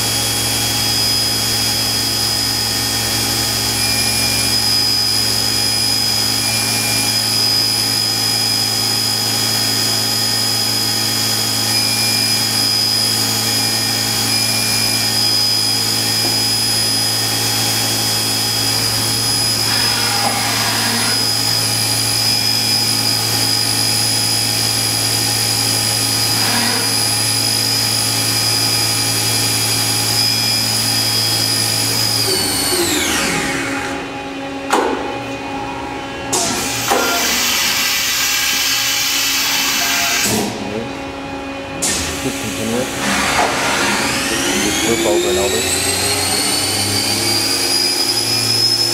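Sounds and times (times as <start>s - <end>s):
high-pitched spindle whine: 0.0s - 34.4s, 35.4s - 48.9s
motor hum: 0.0s - 48.9s.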